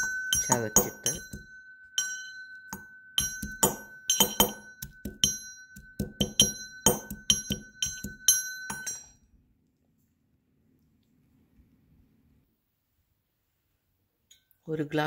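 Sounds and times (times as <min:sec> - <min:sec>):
pestle pounding in metal mortar: 0:00.0 - 0:09.0.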